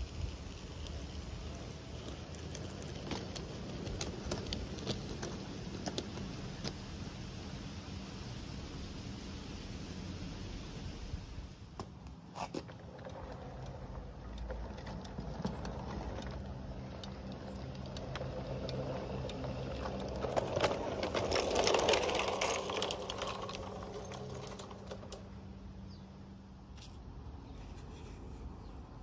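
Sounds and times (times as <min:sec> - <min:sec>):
model train motor whirring: 0:00.0 - 0:06.8, 0:12.5 - 0:25.3
wheels clicking over rail joints: 0:00.0 - 0:07.7, 0:11.5 - 0:27.1.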